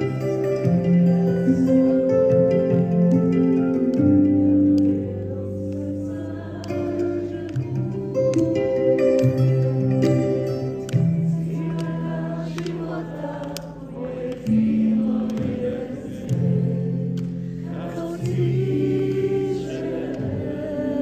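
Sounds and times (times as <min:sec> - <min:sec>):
choir singing long held notes: 0:04.8 - 0:08.3, 0:11.2 - 0:21.0.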